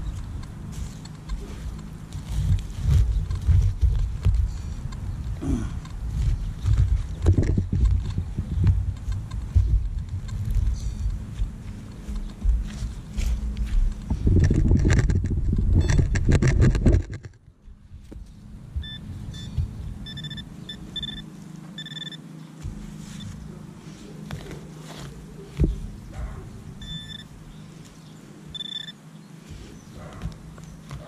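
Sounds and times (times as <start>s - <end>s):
rustling and scraping: 0.0s - 31.0s
metal detector beeps: 15.8s - 16.1s, 18.8s - 22.2s, 26.8s - 27.3s, 28.5s - 29.0s.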